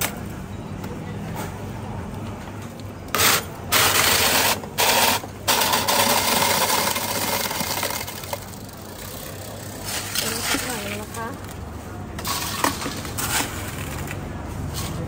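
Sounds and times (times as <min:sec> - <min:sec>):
electric ice shaver grinding ice: 0:03.2 - 0:11.3.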